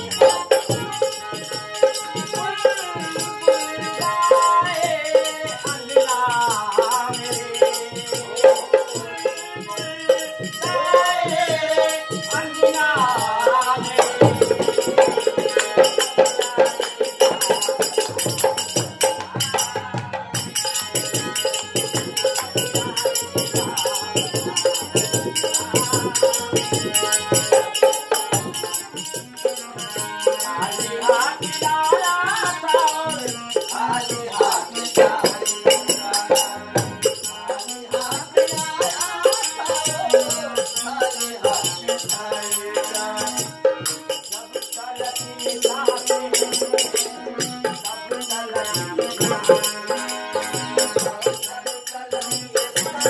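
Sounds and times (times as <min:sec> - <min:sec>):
harmonium: 0:00.0 - 0:53.0
man singing: 0:00.0 - 0:53.0.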